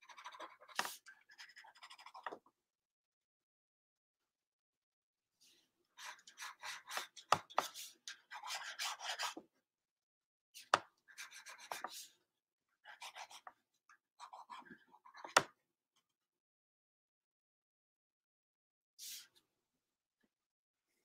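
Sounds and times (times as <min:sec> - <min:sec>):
pencil scratching on paper: 0:00.0 - 0:02.4, 0:06.0 - 0:09.4, 0:10.7 - 0:12.2, 0:12.8 - 0:13.6, 0:14.2 - 0:15.4
pencil ticks: 0:06.0 - 0:09.4.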